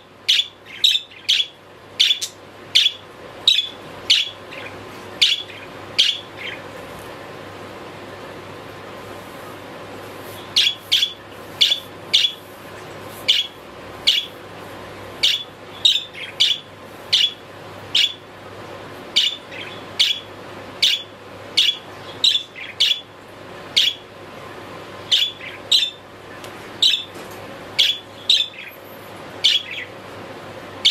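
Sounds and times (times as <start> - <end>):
budgerigar chirping: 0.3 - 6.6, 10.6 - 12.4, 13.2 - 14.4, 15.2 - 18.2, 19.2 - 23.1, 23.7 - 24.0, 25.1 - 26.0, 26.8 - 27.1, 27.8 - 28.8, 29.4 - 29.9.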